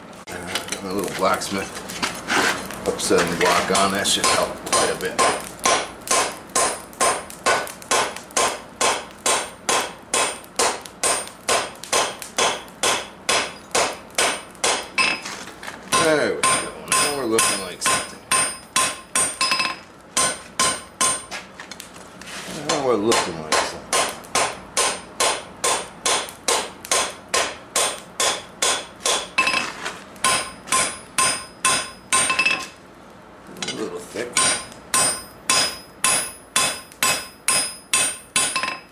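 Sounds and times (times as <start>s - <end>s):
hammer striking steel on anvil: 3.8s - 15.2s, 15.9s - 21.3s, 22.7s - 32.7s, 33.6s - 38.9s
anvil ringing: 16.0s - 21.3s, 30.3s - 32.7s, 34.4s - 38.9s.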